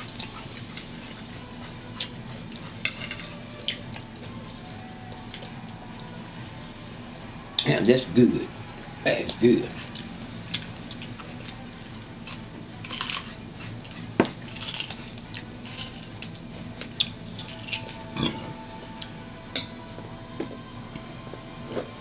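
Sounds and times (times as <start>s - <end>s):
celery crunching being chewed: 9.8s - 22.0s.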